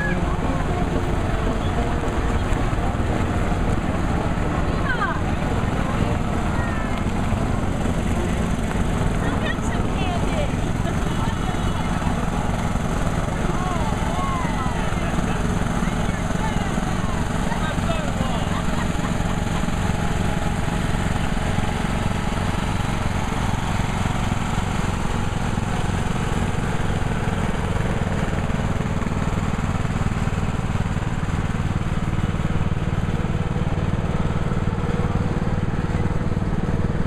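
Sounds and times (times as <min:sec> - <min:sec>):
lawn tractor engines humming: 0:00.0 - 0:37.0.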